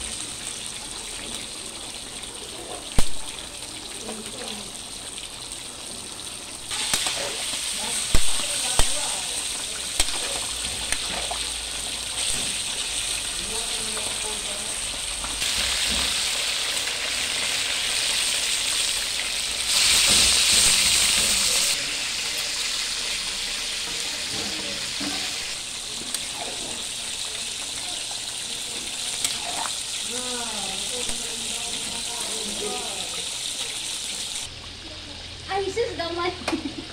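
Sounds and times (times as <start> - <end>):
fish frying in hot oil: 0.0 - 36.9
food sizzling in pans: 0.0 - 36.9.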